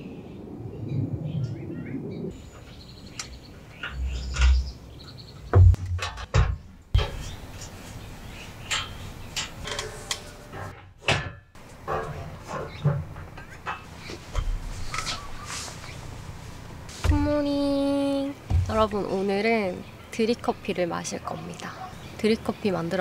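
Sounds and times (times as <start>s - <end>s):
metal panels clanking: 3.2s - 15.4s
dull thumps: 5.4s - 7.3s, 16.9s - 17.7s, 18.4s - 19.2s.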